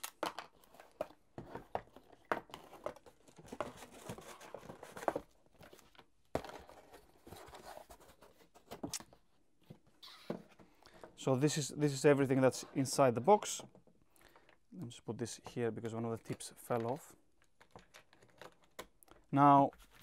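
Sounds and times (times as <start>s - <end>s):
plastic pieces knocking and clicking: 0.0s - 2.9s
cardboard and paper rustling: 0.4s - 9.2s, 16.2s - 20.0s.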